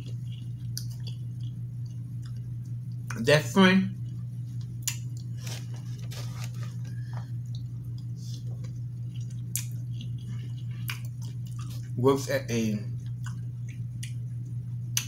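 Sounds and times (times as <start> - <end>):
wet chewing: 0.0 - 3.2, 4.0 - 12.0
low hum: 0.0 - 15.0.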